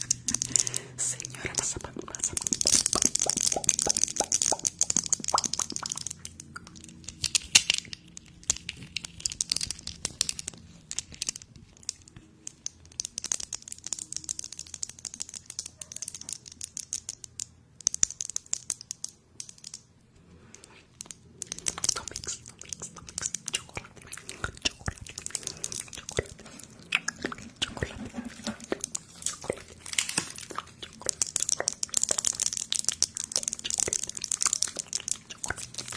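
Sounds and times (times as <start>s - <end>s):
crackling and clicking: 0.0s - 35.9s.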